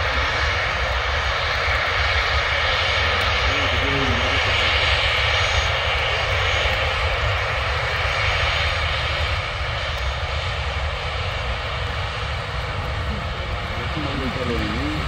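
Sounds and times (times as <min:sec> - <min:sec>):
jet engines roaring: 0:00.0 - 0:15.0.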